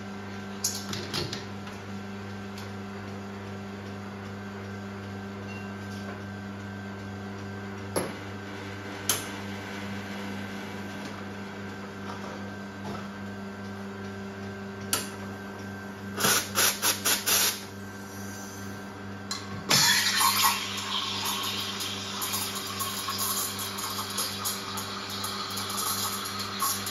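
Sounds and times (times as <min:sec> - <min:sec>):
espresso machine pump humming: 0:13.8 - 0:26.9.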